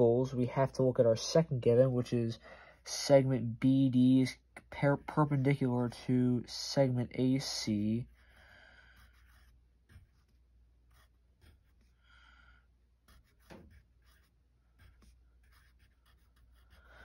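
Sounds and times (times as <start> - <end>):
pencil scratching on paper: 7.7 - 12.2, 13.0 - 17.0.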